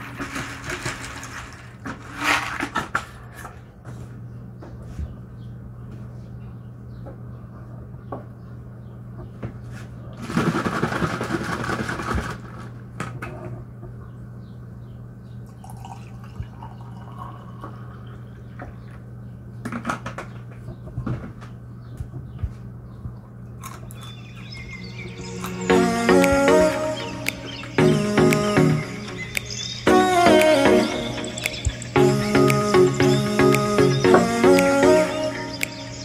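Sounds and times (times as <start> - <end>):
juice pouring into a glass: 15.6 - 18.4.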